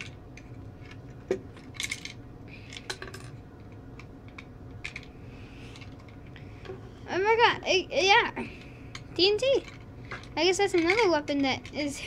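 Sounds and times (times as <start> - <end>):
plastic bricks clicking and rattling: 9.6 - 11.9.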